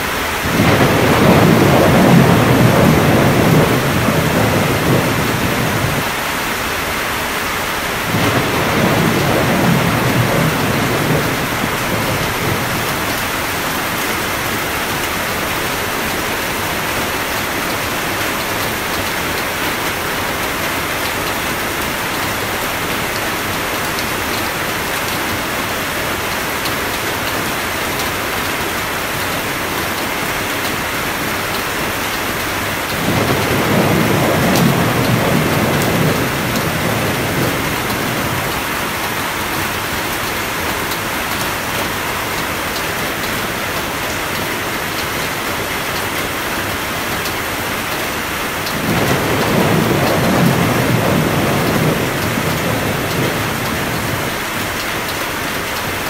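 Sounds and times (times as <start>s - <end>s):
heavy rain: 0.0s - 56.0s
rolling thunder: 0.4s - 6.2s, 7.9s - 15.3s, 32.7s - 42.4s, 48.5s - 54.7s.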